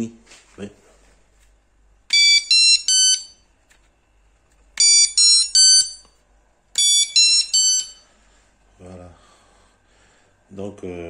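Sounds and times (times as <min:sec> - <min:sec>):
electronic bite alarm beeping: 0:02.1 - 0:03.4, 0:04.8 - 0:06.0, 0:06.8 - 0:08.1.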